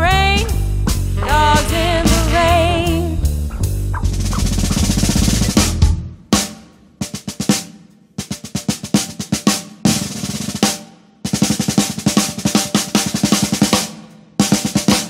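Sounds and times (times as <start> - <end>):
snare and tom rolls: 3.5 - 15.0.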